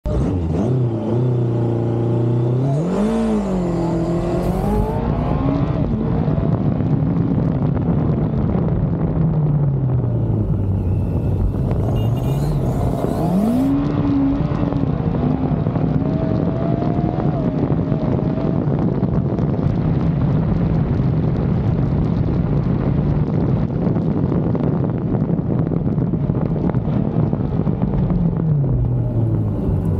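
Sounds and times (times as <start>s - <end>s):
motorcycle engine revving: 0.1s - 6.6s, 10.0s - 18.4s.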